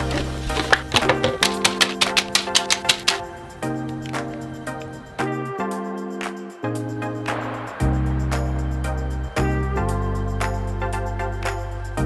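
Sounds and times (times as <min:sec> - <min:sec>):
quick beat of sharp hits: 0:00.9 - 0:03.2.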